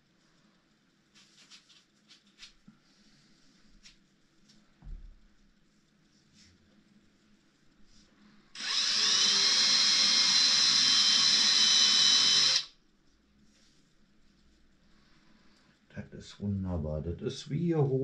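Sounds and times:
cordless drill whining: 0:08.6 - 0:12.7.

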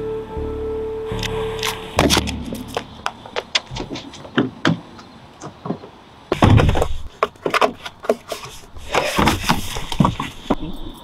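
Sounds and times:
footsteps on asphalt: 0:02.0 - 0:06.0
knocks and fumbling inside car: 0:03.6 - 0:08.2.

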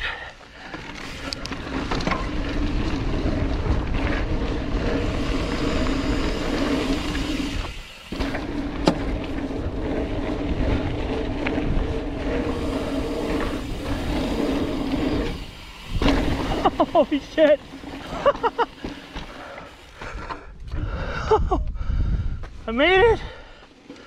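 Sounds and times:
electric bike hum and rattle: 0:00.0 - 0:22.5.

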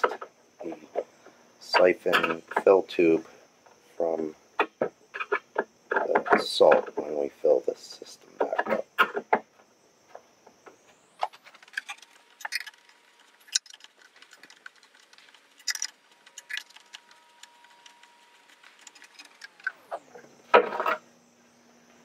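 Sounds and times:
tools clicking and scraping on metal: 0:11.2 - 0:19.8.

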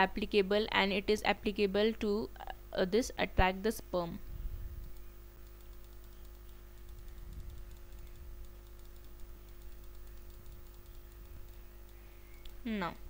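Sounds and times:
steady electrical hum: 0:00.0 - 0:13.0
computer input devices clicking: 0:04.8 - 0:12.6.

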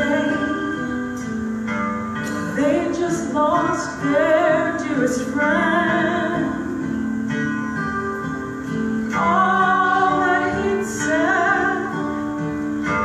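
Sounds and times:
woman singing gospel: 0:00.0 - 0:01.2, 0:02.5 - 0:07.0, 0:09.1 - 0:12.3
piano: 0:00.0 - 0:13.0.

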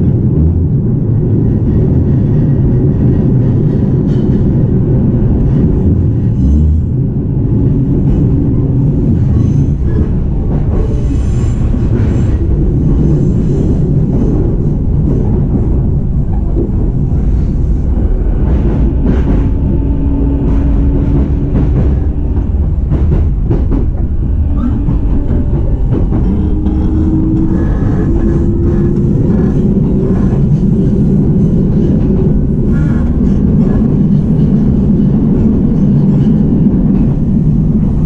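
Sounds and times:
train wheels rumbling on rail: 0:00.0 - 0:38.0
low humming motor tone: 0:18.0 - 0:33.8.

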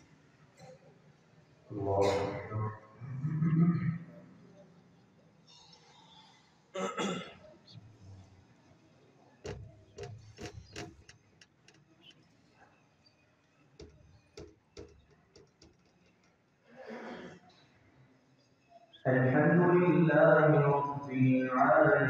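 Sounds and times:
man's voice: 0:01.7 - 0:02.8, 0:19.1 - 0:22.0
faint clicks and knocks: 0:09.4 - 0:12.4, 0:13.4 - 0:16.6.

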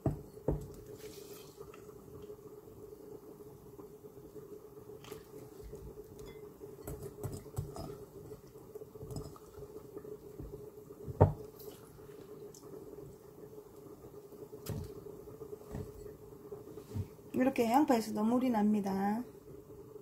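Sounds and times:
hands squeezing wet onion: 0:00.7 - 0:02.4, 0:04.9 - 0:16.0
water dripping into glass bowl: 0:06.1 - 0:11.8.

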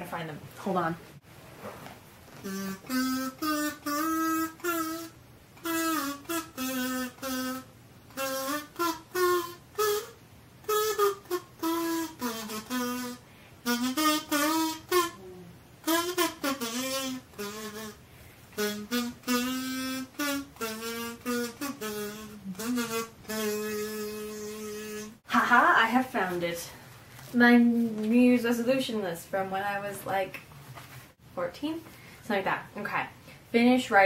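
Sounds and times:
kazoo playing a tune: 0:02.4 - 0:25.2.

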